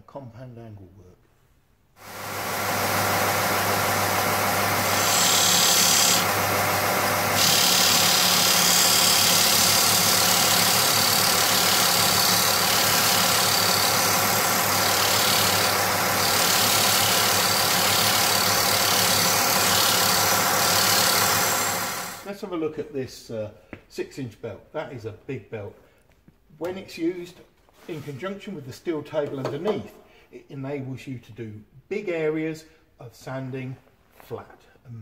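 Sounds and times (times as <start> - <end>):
sander motor humming: 2.0 - 22.2.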